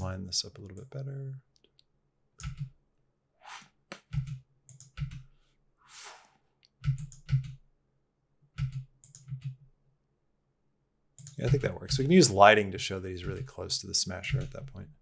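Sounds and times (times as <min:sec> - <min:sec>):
keyboard and mouse clicking: 0:03.9 - 0:05.2, 0:06.7 - 0:07.6, 0:08.6 - 0:09.6, 0:11.2 - 0:12.1.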